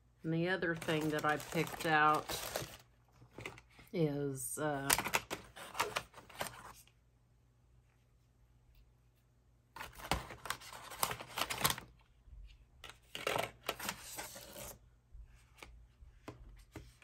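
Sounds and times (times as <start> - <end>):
packaging rustling: 0.7 - 3.8, 4.9 - 6.8, 9.8 - 11.9.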